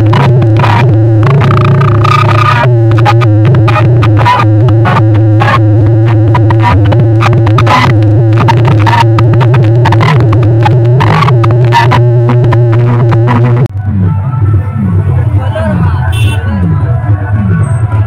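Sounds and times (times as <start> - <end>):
loud dance music with beat: 0.0 - 13.7
heavy low hum: 0.0 - 18.0.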